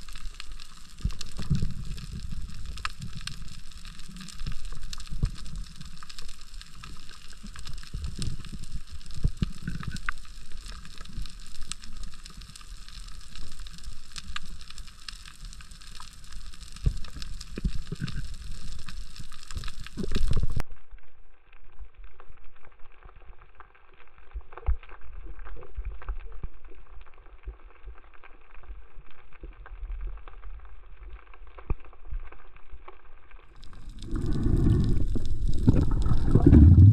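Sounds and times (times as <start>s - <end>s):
underwater rumble and thumps: 0.0s - 20.6s, 24.2s - 36.9s
snapping shrimp crackle: 33.5s - 36.3s.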